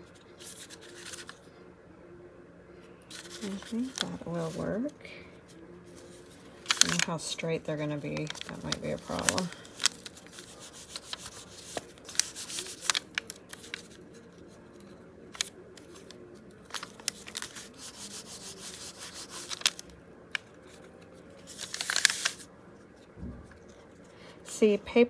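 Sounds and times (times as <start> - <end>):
paper rustling and scuffing: 0.4 - 1.4, 5.9 - 7.2, 8.0 - 22.5.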